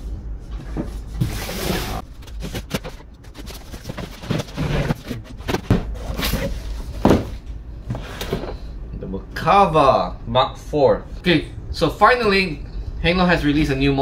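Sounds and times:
cardboard scraping against cardboard: 1.0 - 7.2
cardboard box knocks: 7.0 - 7.4.

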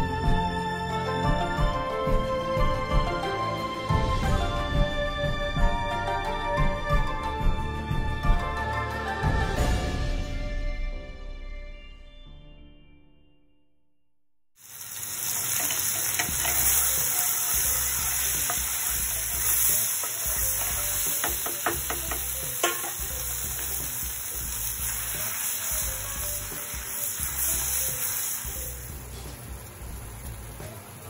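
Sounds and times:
food sizzling in oil: 14.6 - 31.0
wooden spatula clicking on pan: 20.0 - 23.0.

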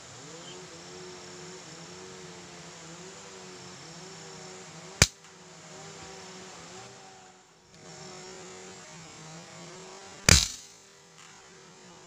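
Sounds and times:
forest insects humming: 0.0 - 12.0
air rifle shot: 10.3 - 10.7.

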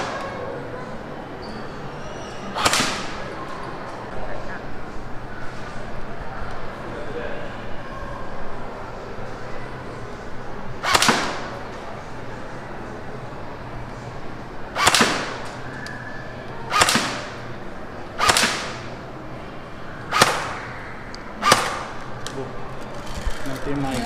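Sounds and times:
airsoft rifle shots: 2.6 - 3.2, 10.8 - 11.6, 14.8 - 15.4, 16.7 - 17.4, 18.2 - 18.8, 20.1 - 20.6, 21.4 - 22.0.

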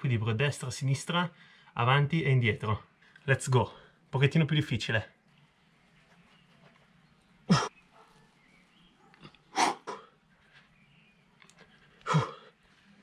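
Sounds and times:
faint grunt: 7.5 - 7.7, 9.2 - 10.2, 12.0 - 12.5.

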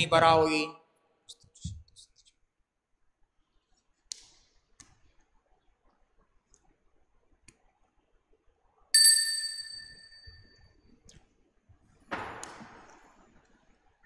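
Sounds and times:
small altar bell ringing: 9.0 - 10.5.

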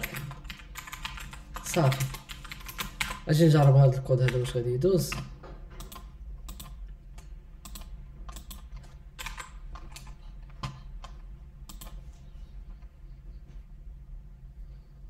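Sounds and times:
typing on computer keyboard: 0.0 - 12.0.

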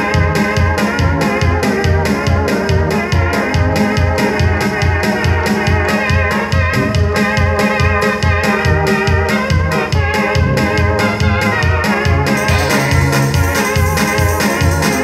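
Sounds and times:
electronic keyboard organ chords: 0.0 - 15.0
pulsing bass and drum beat: 6.5 - 8.0, 8.6 - 15.0.

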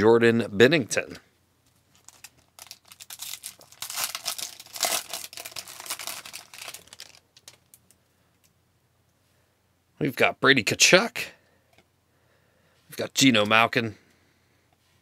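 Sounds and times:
foil wrapper crinkling: 1.9 - 8.0.

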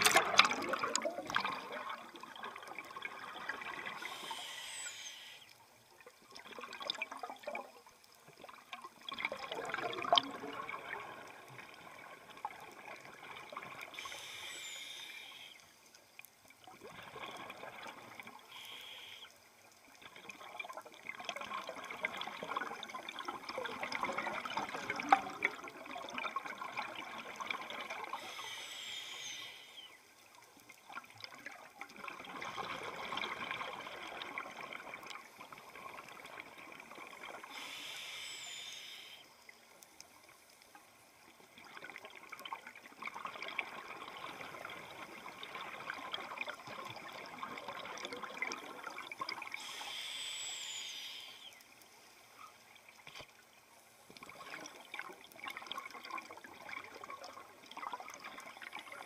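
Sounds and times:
bubbling exhale underwater: 0.0 - 5.4, 9.1 - 11.3
regulator hissing inhale: 4.0 - 5.6, 13.9 - 15.8, 18.4 - 19.4, 28.1 - 30.0, 37.4 - 39.4, 49.6 - 51.7.

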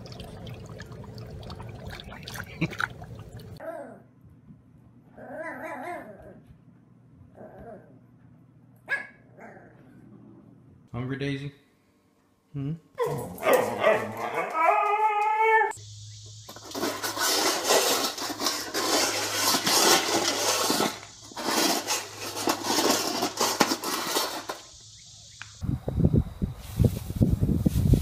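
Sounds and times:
dog eating from steel bowl: 0.0 - 3.6
dog howling: 13.4 - 15.7
wind buffeting microphone: 25.6 - 28.0.

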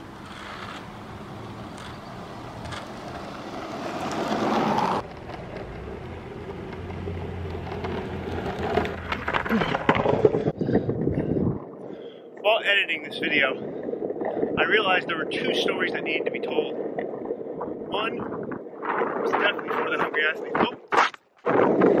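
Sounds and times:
skateboard rattling and clattering: 0.0 - 10.6
skateboard wheels rolling on asphalt: 0.0 - 11.8, 18.9 - 22.0.

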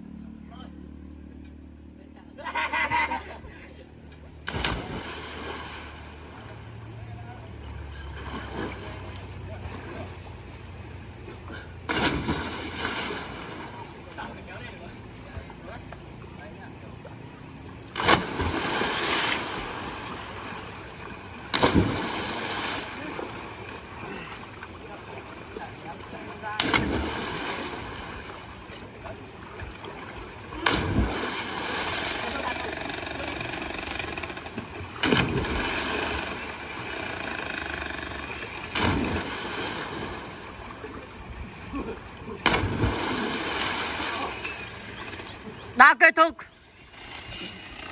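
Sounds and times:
splash into water: 4.4 - 6.5, 8.1 - 10.1, 11.9 - 14.0, 17.9 - 20.8, 21.4 - 24.2, 26.4 - 28.5, 29.8 - 32.5, 35.0 - 36.9, 38.5 - 41.0, 41.7 - 44.9.

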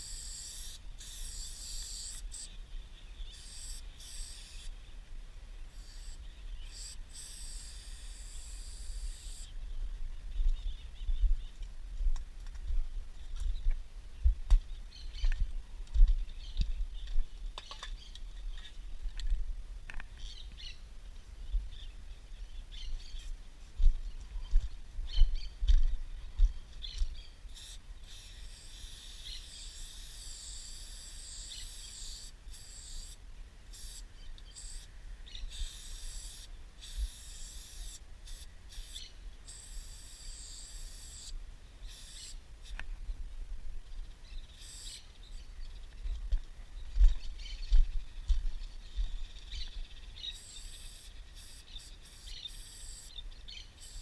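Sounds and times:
spray paint can hissing: 0.0 - 2.5, 3.3 - 4.7, 5.7 - 9.5, 27.5 - 34.9, 35.5 - 42.4, 44.6 - 45.0, 50.3 - 53.1, 53.8 - 54.0.

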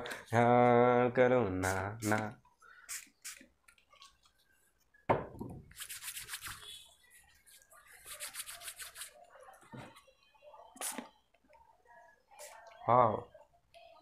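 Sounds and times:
plastic bottle set down on table: 5.1 - 5.6
hands rubbing together: 5.7 - 9.2.

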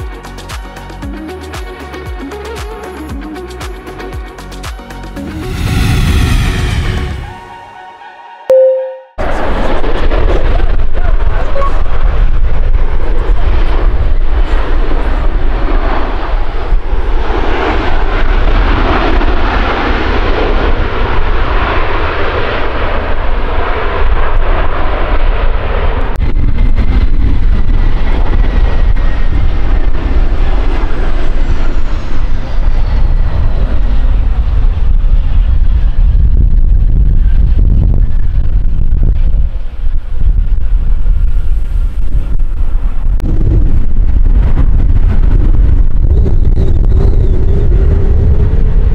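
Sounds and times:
jet engines landing: 0.0 - 48.9
jet whine: 5.1 - 48.9
faint falling tone: 8.5 - 9.2
wind rumble on microphone: 9.2 - 48.9.

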